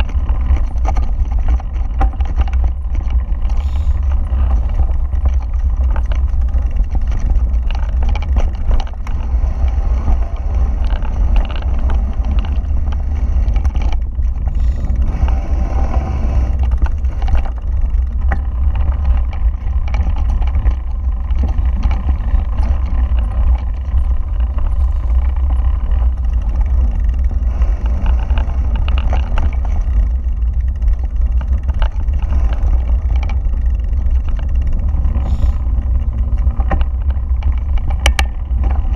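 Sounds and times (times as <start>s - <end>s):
bike rattling over rough ground: 0.0s - 38.9s
tyres on wooden planks: 0.0s - 38.9s
wind buffeting microphone: 0.0s - 38.9s.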